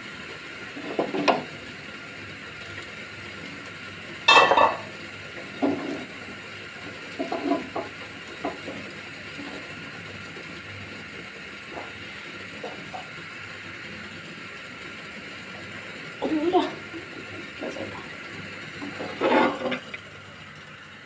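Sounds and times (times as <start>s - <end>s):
spatula scraping a frying pan: 18.8s - 19.9s.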